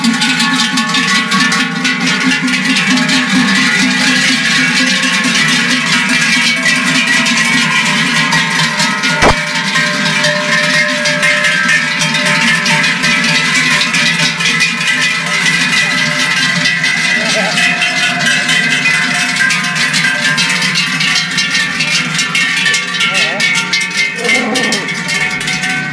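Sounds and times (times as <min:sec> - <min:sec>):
cowbells clanging: 0:00.0 - 0:25.9
sharp knock: 0:09.2 - 0:09.4.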